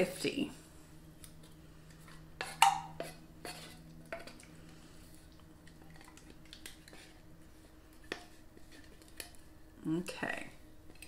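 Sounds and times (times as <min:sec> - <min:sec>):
spatula scraping a metal can: 0:02.4 - 0:04.3.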